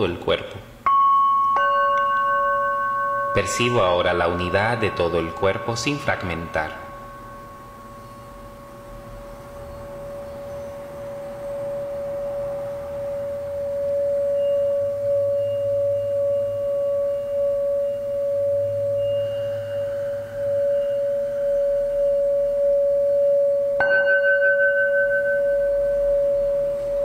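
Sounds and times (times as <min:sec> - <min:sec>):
singing bowl ringing: 0:00.8 - 0:27.0
mallet striking singing bowl: 0:00.9 - 0:10.8, 0:23.8 - 0:27.0.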